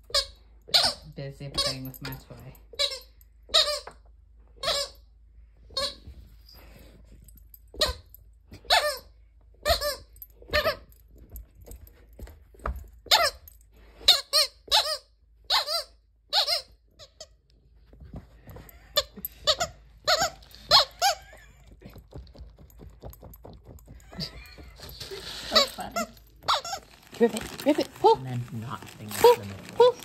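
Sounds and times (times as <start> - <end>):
squeaky dog toy squeaking: 0.0 - 6.2, 7.7 - 10.9, 13.0 - 17.4, 19.0 - 21.5, 24.1 - 28.2.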